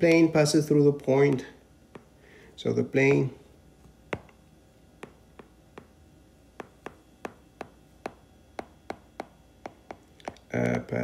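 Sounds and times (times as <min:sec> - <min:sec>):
stylus tapping on glass screen: 0:01.3 - 0:02.2, 0:04.1 - 0:04.4, 0:05.0 - 0:06.0, 0:06.6 - 0:10.5.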